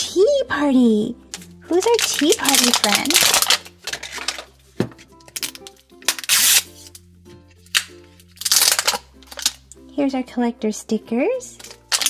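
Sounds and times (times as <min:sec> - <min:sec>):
soft background music: 0:00.0 - 0:12.0
plastic wrapping crinkling: 0:01.3 - 0:07.0, 0:07.7 - 0:09.6, 0:11.6 - 0:12.0.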